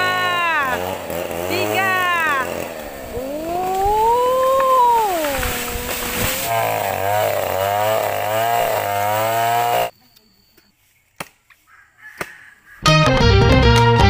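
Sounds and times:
chainsaw cutting wood: 0.0s - 9.9s.

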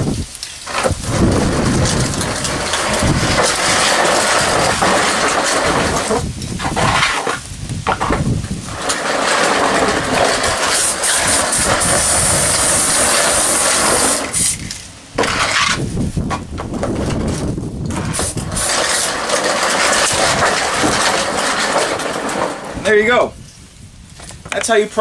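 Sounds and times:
aerosol spray can hissing: 10.8s - 14.7s.

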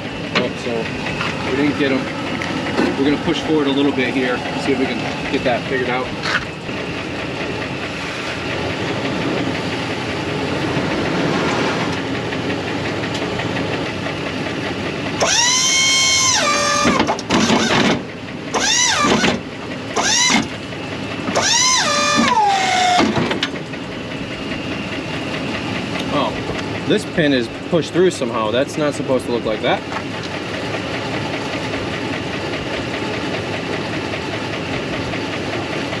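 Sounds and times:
truck engine running: 0.0s - 36.0s
whining hydraulic pump motor: 0.0s - 36.0s.

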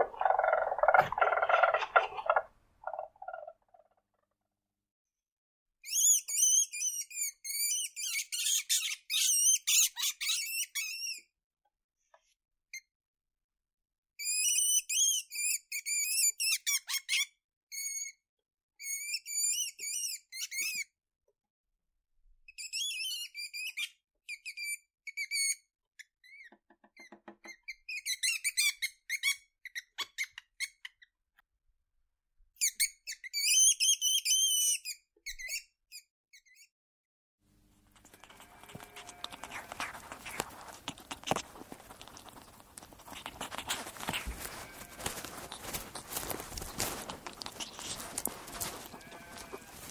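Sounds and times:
weasel squeaking: 0.0s - 3.6s, 38.0s - 49.9s.

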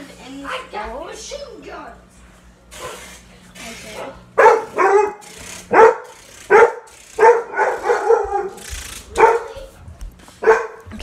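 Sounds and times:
dog barking: 4.0s - 9.7s, 10.4s - 10.9s.

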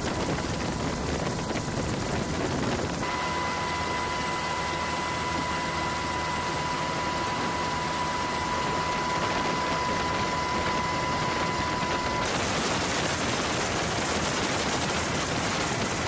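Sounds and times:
steady rushing noise: 0.0s - 3.5s, 6.5s - 16.0s
steady high tone: 3.0s - 12.3s.

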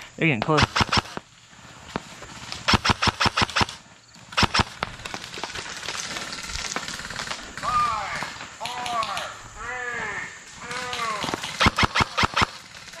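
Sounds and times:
airsoft guns firing: 0.4s - 1.3s, 2.6s - 9.4s, 10.6s - 13.0s.

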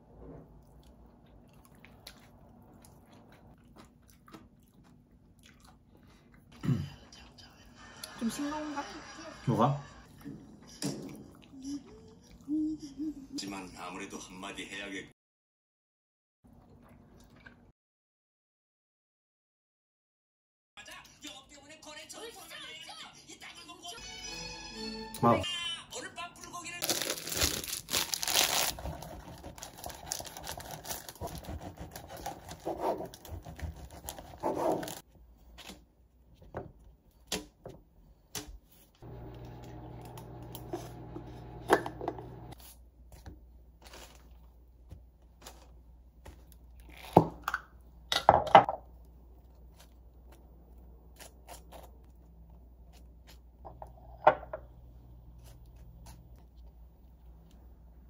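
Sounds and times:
plastic bag crinkling: 26.8s - 31.4s.

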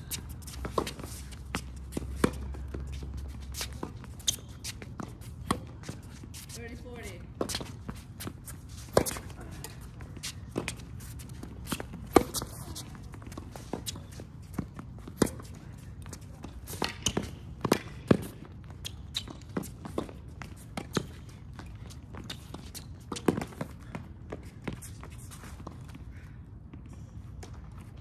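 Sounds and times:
tennis ball bounces: 7.4s - 15.6s, 16.4s - 24.8s.

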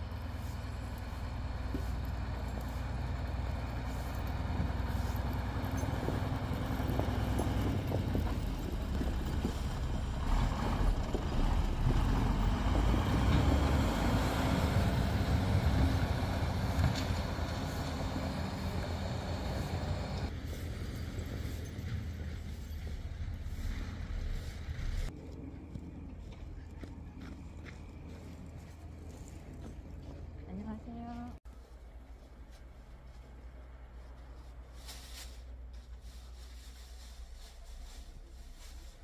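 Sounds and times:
truck engine driving past: 0.0s - 30.4s.

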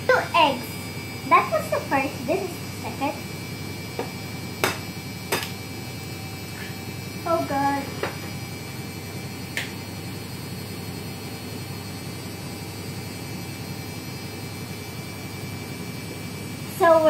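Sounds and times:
low electrical hum: 0.0s - 17.0s.

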